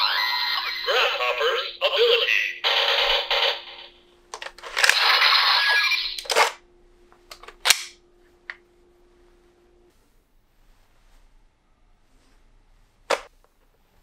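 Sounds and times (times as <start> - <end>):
toy electronic sound effect: 0.0 - 3.9, 5.0 - 6.3
faint electronic hum: 0.0 - 14.0.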